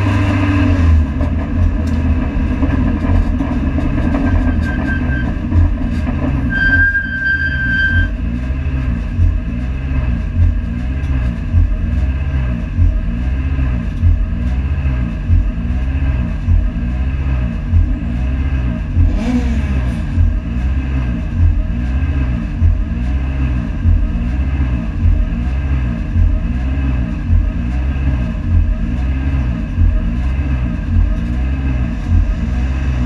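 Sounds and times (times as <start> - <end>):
race car engine running: 0.0 - 33.0
steady beep: 6.5 - 8.2.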